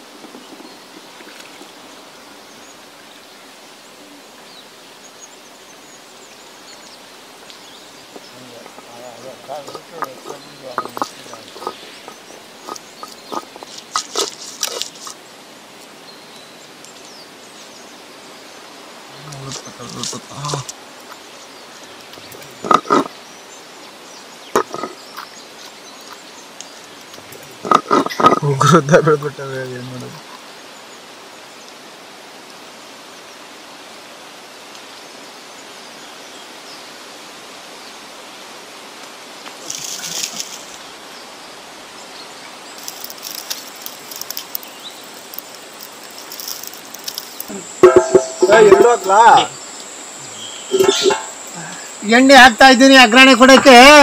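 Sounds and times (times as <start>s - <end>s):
outdoor background hiss: 0.0s - 54.0s
faint bird chirps: 42.1s - 52.2s
stone roller knocking on stone slab: 47.8s - 49.1s.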